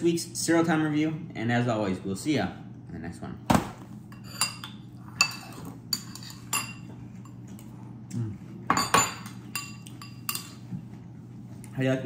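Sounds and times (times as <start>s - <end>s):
spoons clinking in cereal bowls: 4.2s - 7.4s, 8.7s - 10.6s.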